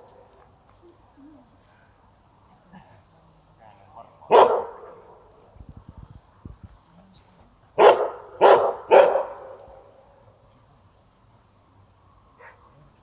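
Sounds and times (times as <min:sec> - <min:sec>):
dog barking: 0:04.3 - 0:05.0, 0:07.8 - 0:09.6, 0:12.4 - 0:12.7.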